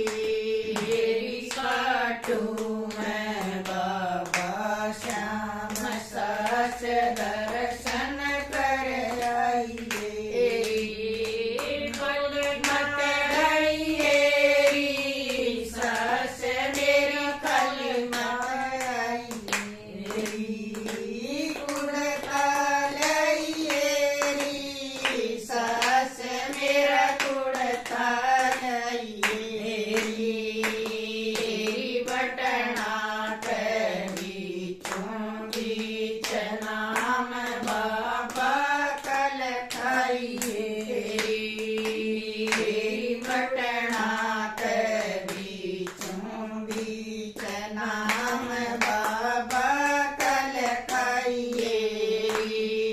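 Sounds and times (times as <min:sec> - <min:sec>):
hand-clapping: 0:00.0 - 0:52.9
women singing together: 0:00.0 - 0:52.9.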